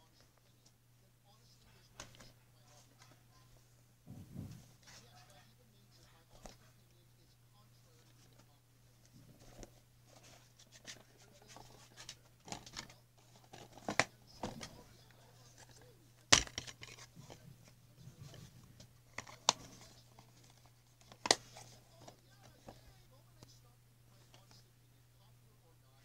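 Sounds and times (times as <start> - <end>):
plastic cases rustling: 9.2 - 22.9
plastic cases clacking: 10.8 - 14.8, 15.6 - 17.4.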